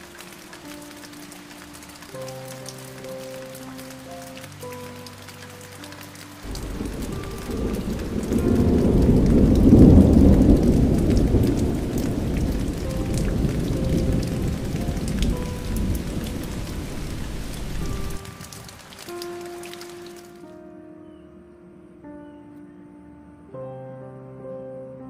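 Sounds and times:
steady rain: 0:00.0 - 0:20.6
thunder rumbling: 0:06.4 - 0:19.0.

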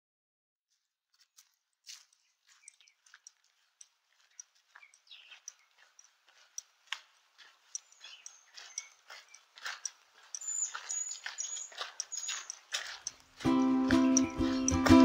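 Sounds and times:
faint bird chirps and calls: 0:04.2 - 0:13.2
high whistled bird notes: 0:10.4 - 0:12.5, 0:13.5 - 0:15.0.

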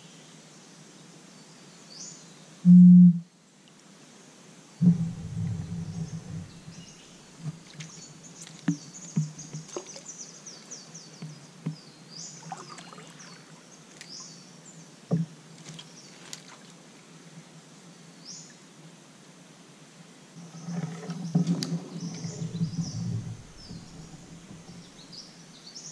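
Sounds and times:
birds chirping: 0:04.8 - 0:14.4, 0:20.5 - 0:25.9.

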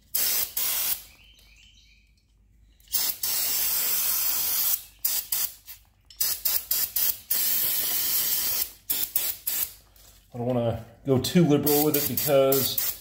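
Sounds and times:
aerosol can spraying: 0:00.1 - 0:01.1, 0:02.9 - 0:09.8, 0:11.7 - 0:13.0.

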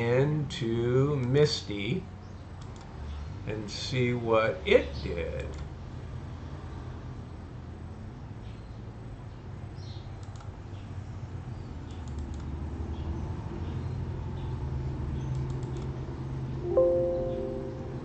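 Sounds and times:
computer mouse clicking: 0:02.6 - 0:03.0, 0:10.2 - 0:10.6, 0:11.8 - 0:12.6, 0:15.3 - 0:16.0
low steady hum: 0:10.2 - 0:18.0.

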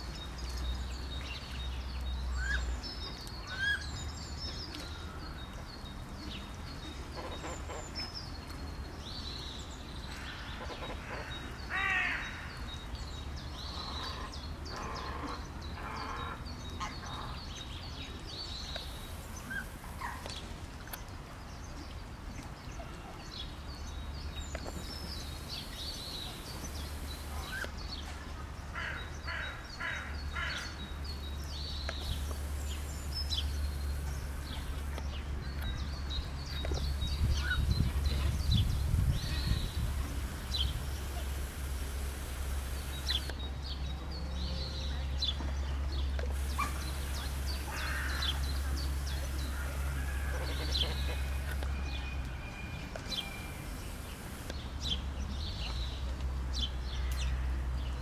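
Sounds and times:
harsh bird calls: 0:31.6 - 0:43.4, 0:46.4 - 0:51.8.

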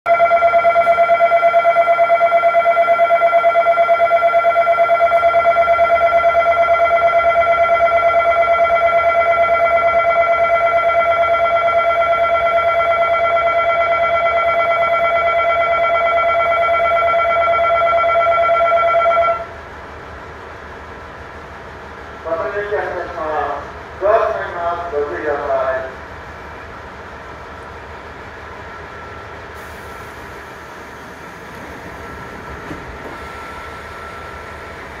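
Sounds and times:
station departure bell ringing: 0:00.1 - 0:19.6, 0:28.1 - 0:35.0.

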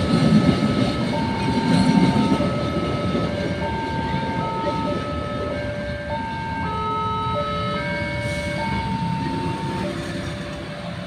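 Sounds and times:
train rumbling past: 0:00.0 - 0:11.0.

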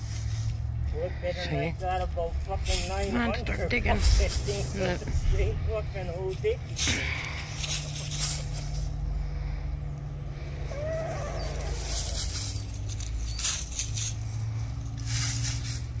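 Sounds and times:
chickens scratching in dry leaves: 0:00.0 - 0:01.2, 0:02.5 - 0:09.1, 0:10.6 - 0:16.0
leaves rustling: 0:00.0 - 0:09.5, 0:10.4 - 0:16.0
low hum: 0:00.0 - 0:16.0
hen call: 0:10.6 - 0:12.7.

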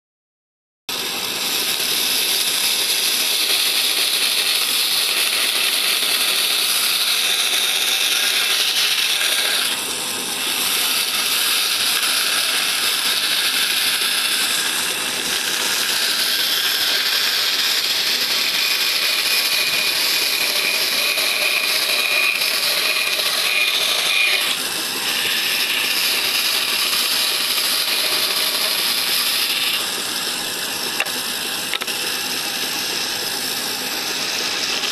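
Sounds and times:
band saw cutting wood: 0:00.9 - 0:34.9
thin whine: 0:07.9 - 0:34.9.

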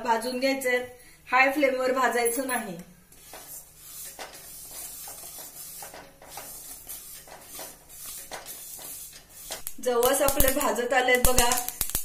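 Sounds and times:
seeds scraping in metal pan: 0:03.1 - 0:10.6.

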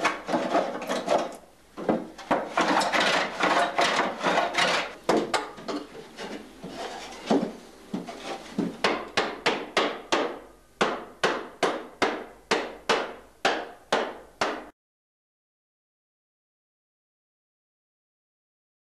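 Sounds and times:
hammer striking wooden barrel: 0:08.6 - 0:14.7.

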